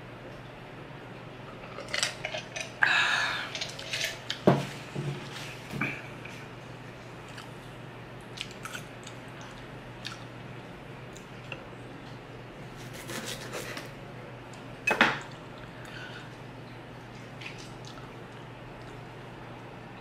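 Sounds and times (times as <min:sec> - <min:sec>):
chewing: 0:07.2 - 0:10.3, 0:17.1 - 0:19.1
knife and fork scraping on board: 0:12.8 - 0:13.9.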